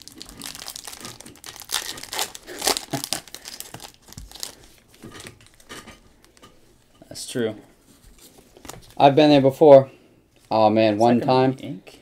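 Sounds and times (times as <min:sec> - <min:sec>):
foil wrapper crinkling and tearing: 0:00.0 - 0:06.4.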